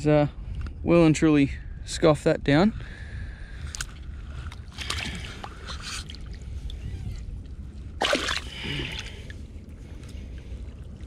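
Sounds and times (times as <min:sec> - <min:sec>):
wind rumble on microphone: 0:00.0 - 0:11.0
water sloshing and splashing: 0:03.6 - 0:11.0.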